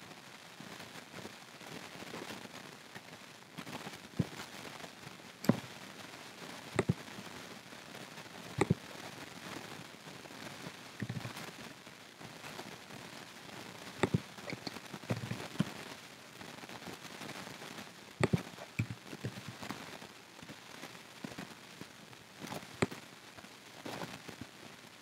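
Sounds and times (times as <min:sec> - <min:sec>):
faint steady hiss: 0:00.0 - 0:25.0
keyboard and mouse clicks: 0:11.0 - 0:11.3, 0:14.0 - 0:15.7, 0:18.2 - 0:19.4.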